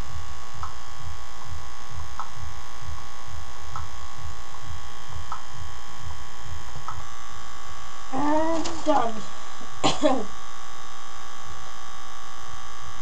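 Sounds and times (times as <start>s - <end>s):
electrical buzz with low throb: 0.0s - 13.0s
faint ticks: 5.3s - 5.5s, 6.8s - 7.1s.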